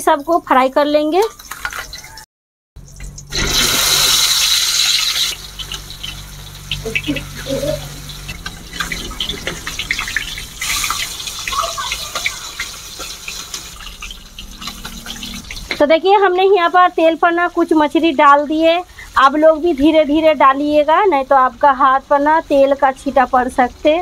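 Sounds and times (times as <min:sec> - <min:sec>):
oil crackling and spitting: 0:02.8 - 0:15.8
fish sizzling in hot oil: 0:02.8 - 0:23.7.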